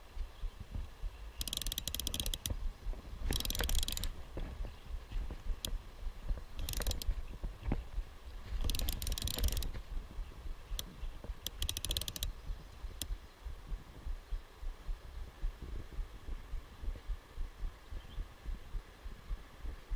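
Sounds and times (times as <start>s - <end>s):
steady low rumble: 12.2s - 19.9s.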